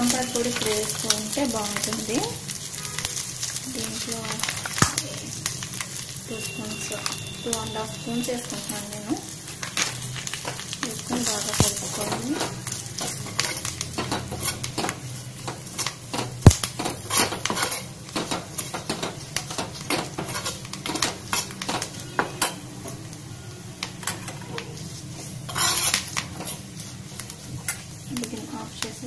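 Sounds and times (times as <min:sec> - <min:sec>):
hot oil sizzling: 0:00.0 - 0:29.0
steel spoon scraping a pan: 0:16.8 - 0:17.9, 0:24.0 - 0:27.9.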